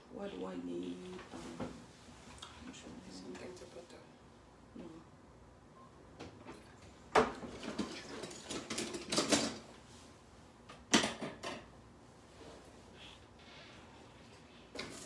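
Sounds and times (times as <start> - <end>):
kitchen things knocking and clattering: 7.1 - 9.7, 10.7 - 11.7.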